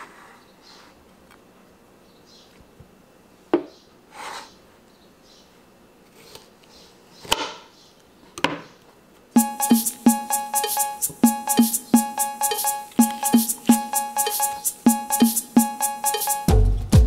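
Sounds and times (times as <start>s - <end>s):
music with rhythmic beat: 9.4s - 17.0s.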